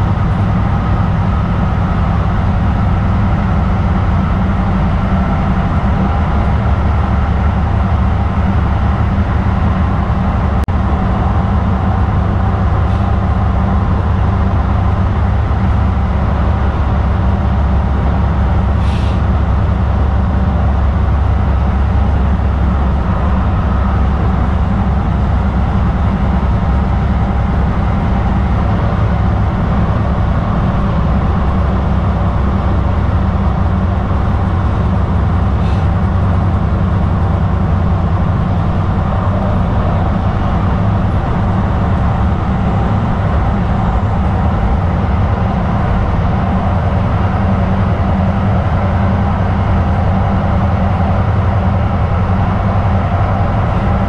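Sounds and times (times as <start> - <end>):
train wheels rumbling on rail: 0.0 - 54.0
brief hiss: 18.8 - 19.2.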